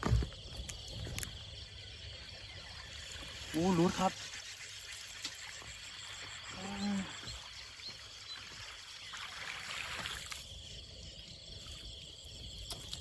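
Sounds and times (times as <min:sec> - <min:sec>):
splashy hiss: 0:02.8 - 0:10.5.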